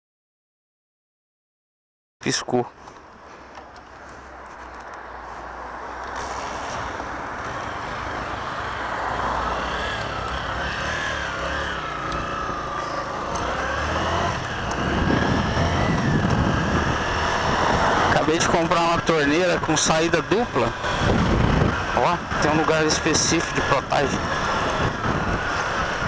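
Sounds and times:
wind and road rush: 0:02.2 - 0:26.0
motorcycle engine running: 0:06.3 - 0:26.0.

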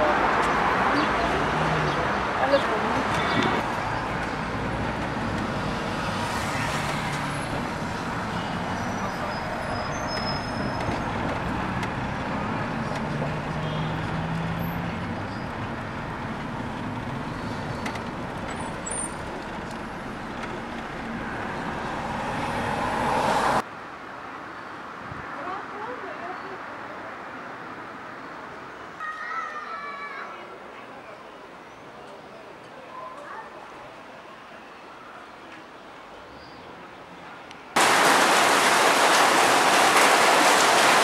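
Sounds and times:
bus engine hum: 0:00.0 - 0:23.6
road rumble: 0:00.0 - 0:24.2, 0:37.4 - 0:41.0.

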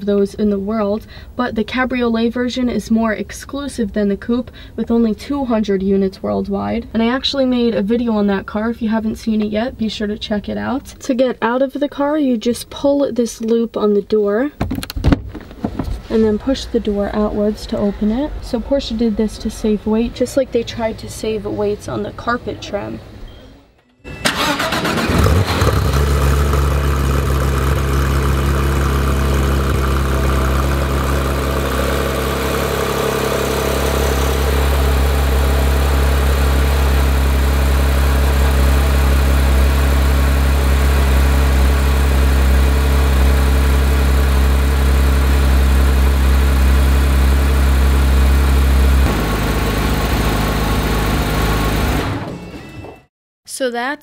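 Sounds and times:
car engine starting and idling: 0:24.1 - 0:52.4.

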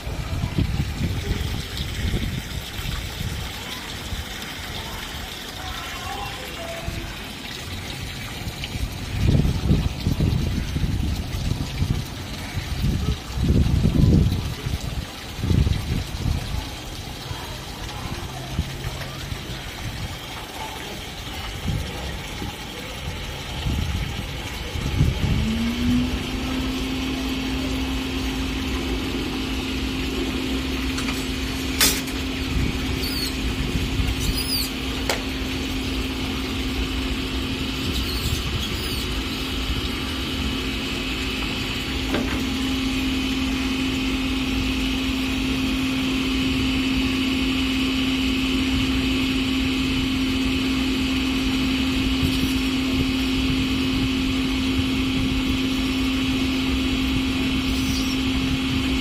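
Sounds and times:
machine humming: 0:18.3 - 0:59.0
high chirps: 0:33.0 - 0:33.4, 0:34.2 - 0:34.8.

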